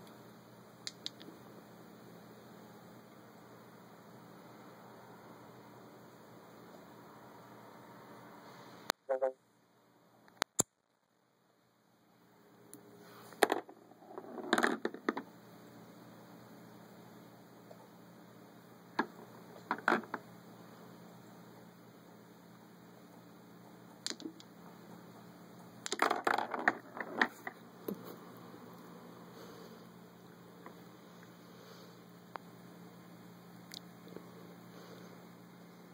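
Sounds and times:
pool balls clacking: 0:25.9 - 0:28.0.

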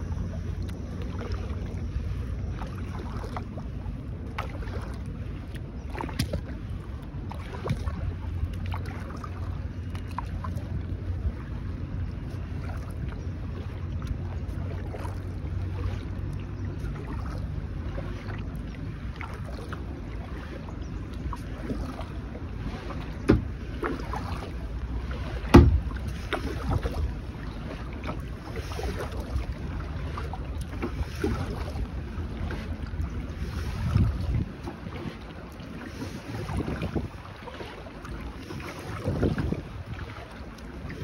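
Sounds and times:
low wind rumble on microphone: 0:00.0 - 0:41.0
water splashing and dripping: 0:00.3 - 0:41.0
sharp knocks: 0:25.5 - 0:25.9.

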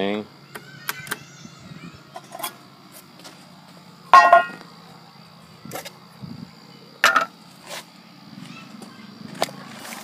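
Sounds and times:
sharp metallic clanks: 0:04.1 - 0:04.6.

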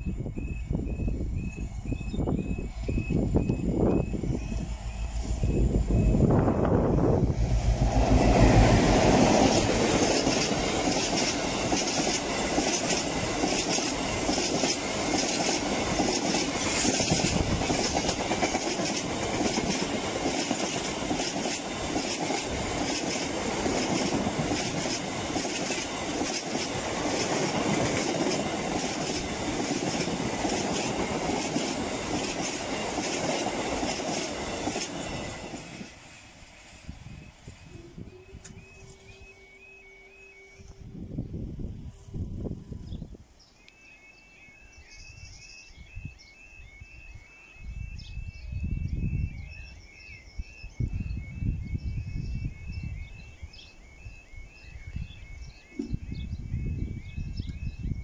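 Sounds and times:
diesel locomotive passing: 0:00.0 - 0:43.1.

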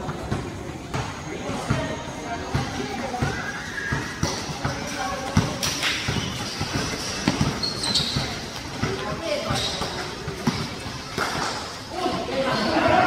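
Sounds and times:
basketball dribbling: 0:00.0 - 0:11.4
voices of players and onlookers: 0:00.0 - 0:13.0
high squeak: 0:07.2 - 0:08.4.

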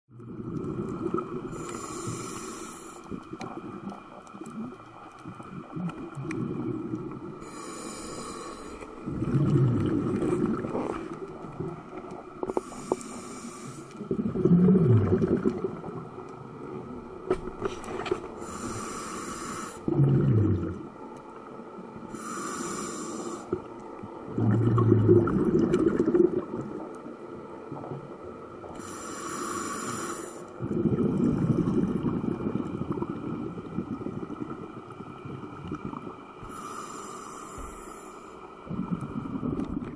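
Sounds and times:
exhaled bubbles rumbling: 0:00.1 - 0:02.4, 0:03.0 - 0:07.7, 0:08.9 - 0:13.0, 0:14.0 - 0:18.6, 0:19.8 - 0:21.0, 0:23.5 - 0:28.8, 0:30.5 - 0:36.5, 0:38.6 - 0:39.9
regulator inhale hiss: 0:01.5 - 0:03.3, 0:07.4 - 0:09.0, 0:12.4 - 0:14.1, 0:17.7 - 0:19.9, 0:22.1 - 0:23.6, 0:28.7 - 0:30.6, 0:36.4 - 0:38.6.

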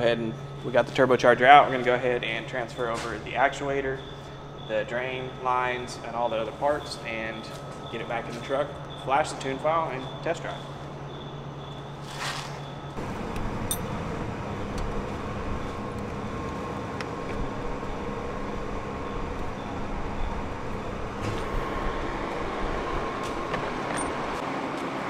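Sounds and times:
low mechanical rumble: 0:10.8 - 0:24.4.

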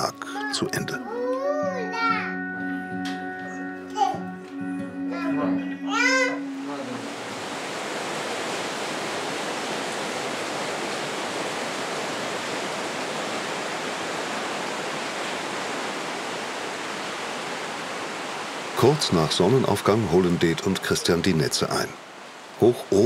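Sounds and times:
rushing stream water: 0:05.2 - 0:23.0.

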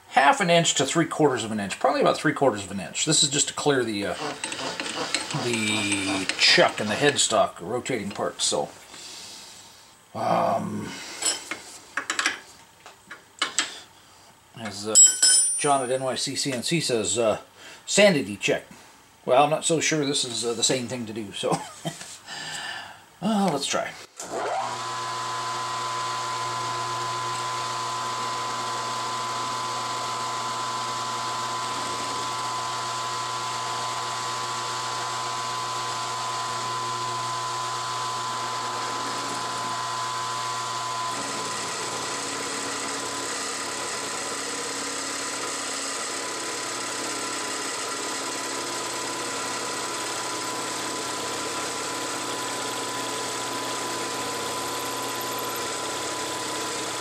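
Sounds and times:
milling machine cutting metal: 0:03.9 - 0:07.3, 0:24.2 - 0:57.0.

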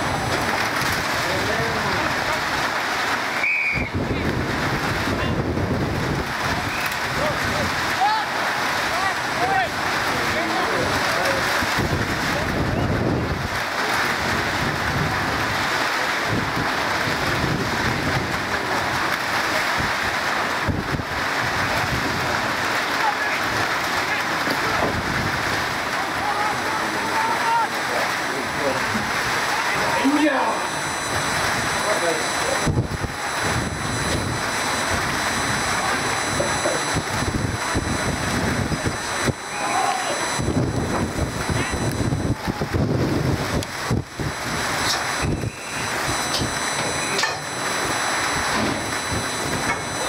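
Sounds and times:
rain pattering: 0:00.0 - 0:50.0
wind buffeting microphone: 0:03.8 - 0:07.9, 0:11.5 - 0:19.1, 0:30.7 - 0:39.5, 0:40.2 - 0:50.0.

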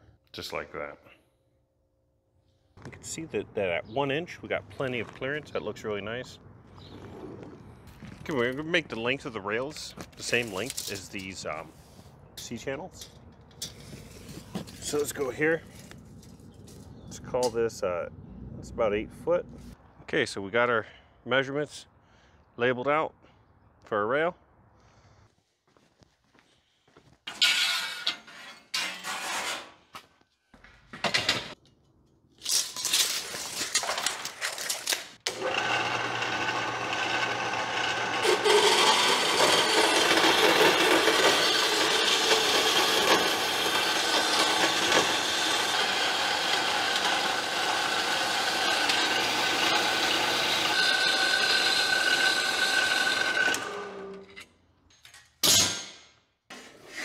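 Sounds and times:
metal-cutting power saw: 0:35.3 - 0:54.5.

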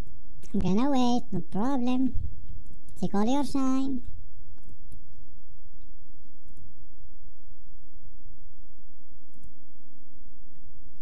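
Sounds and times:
faint clicks: 0:09.3 - 0:09.6.

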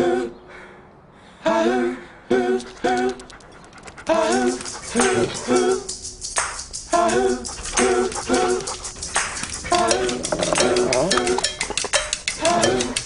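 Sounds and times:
percussion ticking: 0:02.6 - 0:13.0.

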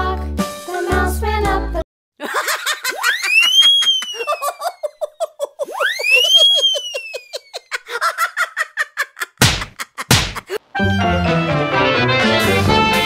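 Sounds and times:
giggling laughter: 0:02.2 - 0:10.6
sliding comedy whistle: 0:03.0 - 0:04.8, 0:05.6 - 0:07.7.

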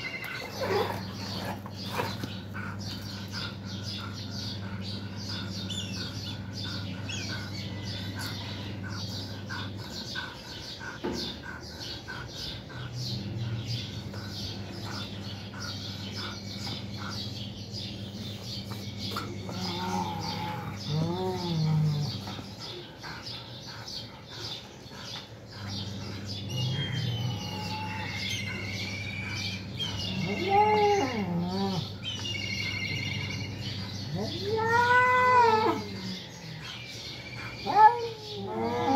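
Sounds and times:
cat yowling: 0:34.1 - 0:36.2.

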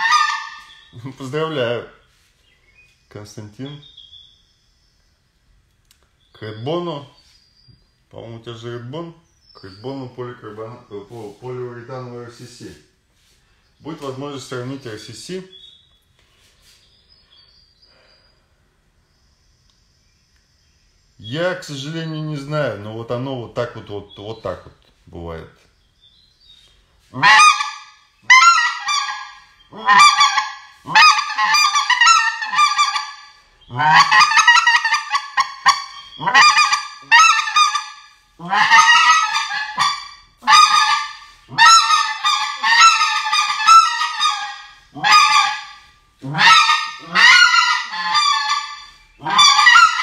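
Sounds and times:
goose call honks and clucks: 0:00.0 - 0:01.6, 0:27.1 - 0:50.0.

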